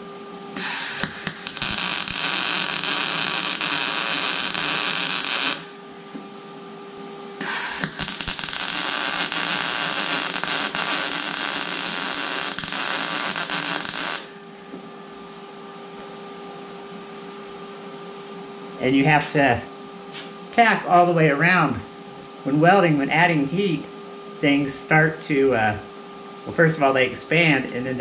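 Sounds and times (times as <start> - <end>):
low electrical hum: 0.0 - 28.0
welder crackling hiss: 0.6 - 6.2, 7.4 - 14.9.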